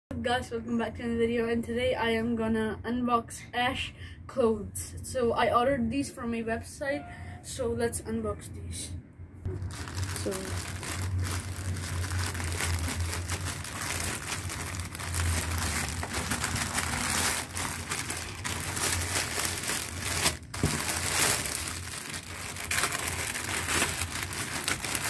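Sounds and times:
plastic bag crinkling and ripping: 9.5s - 25.0s.

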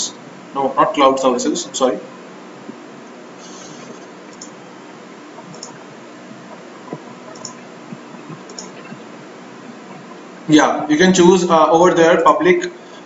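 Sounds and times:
steady background hiss: 0.0s - 13.0s
computer mouse clicks: 3.4s - 4.6s, 5.4s - 5.8s, 6.9s - 7.6s, 8.2s - 9.0s.

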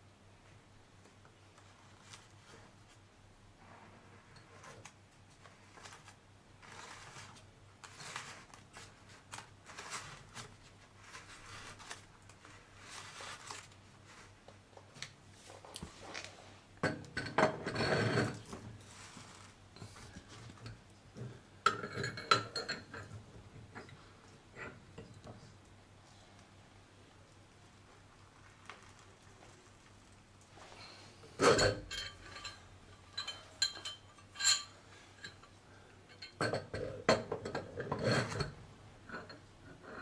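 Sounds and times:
metal tool clinking against heater: 21.6s - 23.2s, 31.4s - 38.5s.

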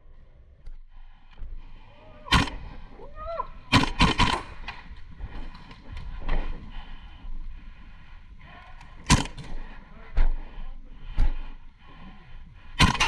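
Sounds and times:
airsoft gunshots: 2.3s - 2.6s, 3.7s - 4.6s, 9.1s - 9.5s, 12.8s - 13.0s.

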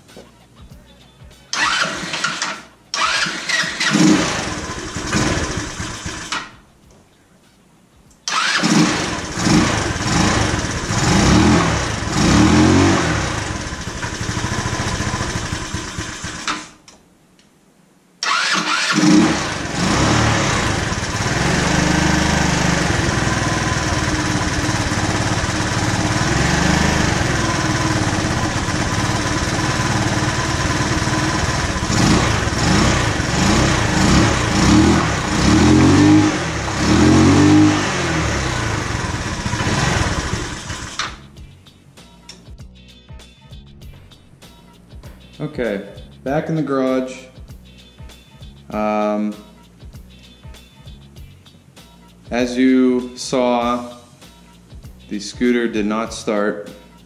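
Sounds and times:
scooter engine revving: 1.5s - 6.5s, 8.3s - 16.8s, 18.2s - 41.2s.

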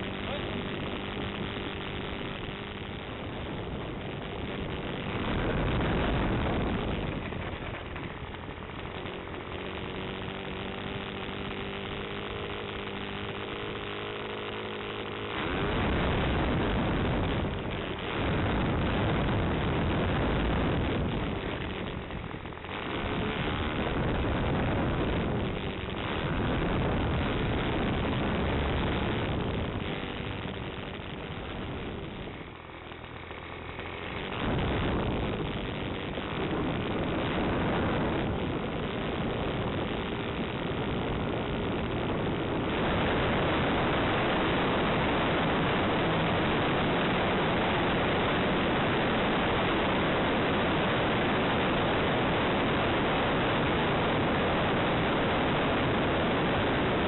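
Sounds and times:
model airplane motor humming: 0.0s - 49.2s
rushing air noise: 14.1s - 57.0s.

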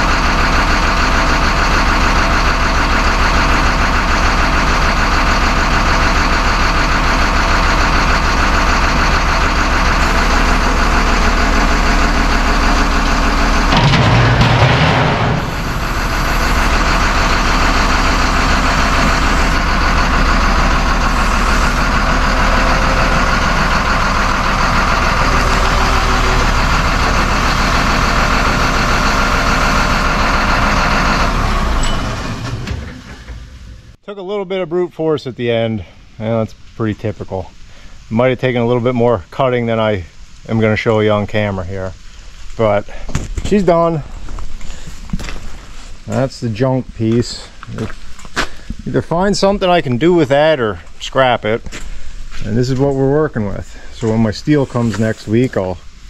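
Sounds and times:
engine running: 0.0s - 34.0s, 35.8s - 56.0s
plasma cutter hissing: 15.3s - 29.3s.

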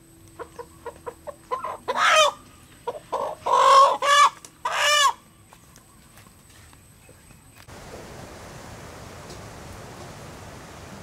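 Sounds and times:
chicken clucking: 0.4s - 5.2s
chicken squawking: 0.4s - 5.2s.

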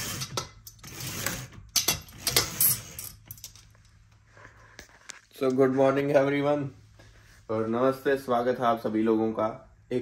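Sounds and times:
fabric blind rubbing and sliding: 0.0s - 3.2s.

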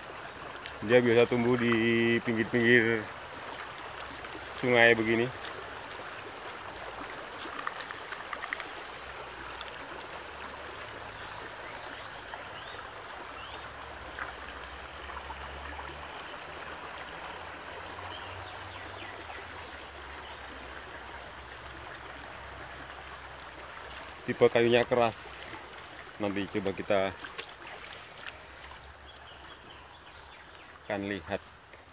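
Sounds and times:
stream running over rocks: 0.0s - 31.9s
faint clicks: 7.4s - 8.8s.

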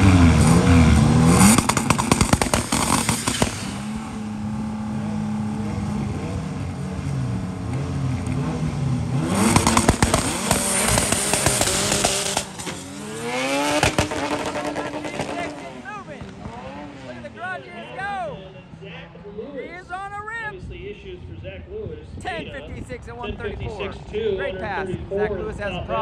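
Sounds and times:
race car engines revving: 0.0s - 20.2s
exhaust crackling pops: 0.3s - 4.2s, 9.2s - 16.6s.

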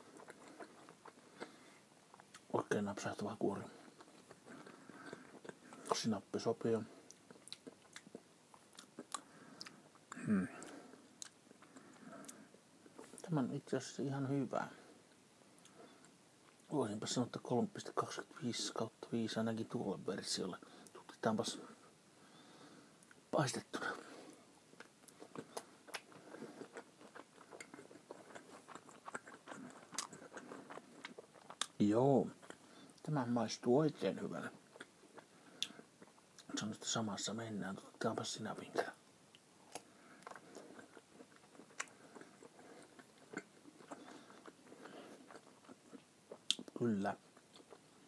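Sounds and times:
person chewing food: 0.0s - 2.5s, 3.8s - 6.0s, 7.0s - 13.2s, 24.7s - 33.1s, 34.6s - 36.5s, 39.3s - 48.0s.

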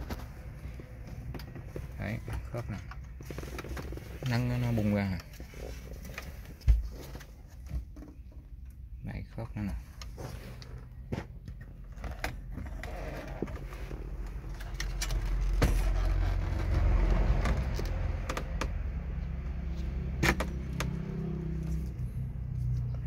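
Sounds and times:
plastic and metal clicks and knocks: 16.7s - 18.9s, 20.2s - 21.0s.

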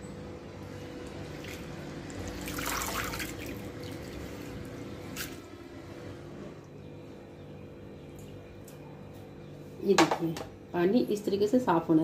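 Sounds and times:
water splashing and dripping: 1.3s - 4.2s.

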